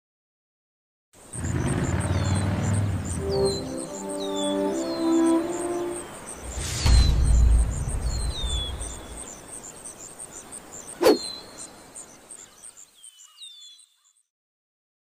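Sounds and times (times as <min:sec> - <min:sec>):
crickets chirping: 0:01.2 - 0:13.3
falling bird calls: 0:01.2 - 0:14.2
background music bass: 0:02.8 - 0:09.2
sharp hit: 0:06.3 - 0:09.4.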